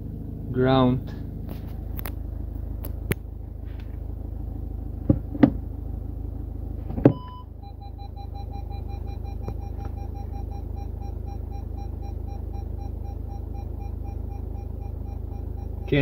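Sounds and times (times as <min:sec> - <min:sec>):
car cabin low hum: 0:00.0 - 0:16.0
park assist short tone: 0:06.9 - 0:16.0
rapid repeating beeps: 0:07.2 - 0:16.0.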